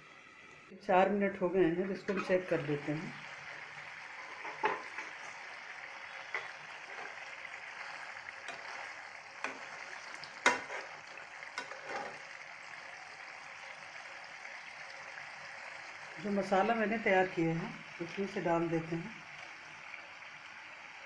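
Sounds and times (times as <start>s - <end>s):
curry bubbling in a pan: 1.7s - 21.0s
metal spoon scraping a pan: 2.0s - 2.6s, 4.1s - 5.3s, 6.1s - 12.3s.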